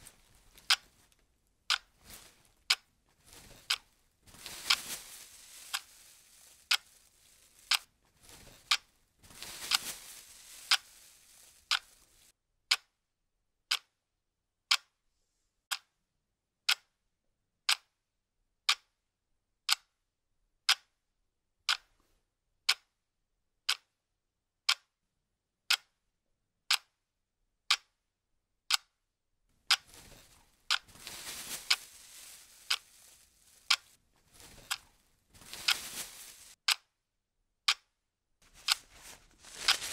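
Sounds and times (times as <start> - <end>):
clock ticking: 0.0 - 4.8, 12.7 - 13.0, 13.7 - 14.0, 14.6 - 15.0, 15.7 - 16.0, 16.7 - 17.0, 17.6 - 18.0, 18.6 - 19.0, 19.7 - 20.0, 20.6 - 21.0, 22.6 - 23.0, 23.6 - 24.0, 24.7 - 25.0, 25.7 - 26.0, 26.7 - 27.0, 27.7 - 28.0, 28.7 - 29.0, 33.5 - 36.9, 37.7 - 39.9
rustling hiss: 1.8 - 12.3, 29.8 - 36.6.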